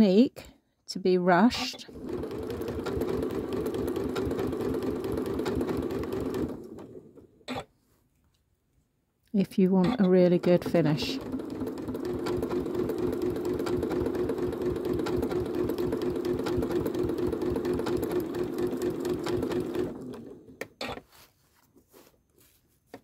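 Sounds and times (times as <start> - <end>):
sewing machine stitching: 1.5 - 7.7, 9.6 - 21.0.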